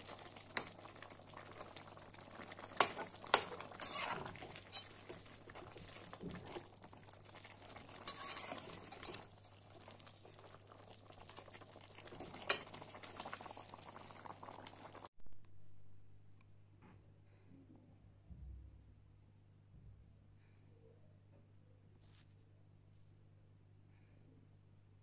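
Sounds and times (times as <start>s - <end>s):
curry bubbling in a pan: 0.0s - 15.1s
metal spatula stirring: 2.4s - 9.4s, 12.0s - 13.3s
spatula scraping a metal pan: 2.8s - 6.7s, 7.9s - 9.3s.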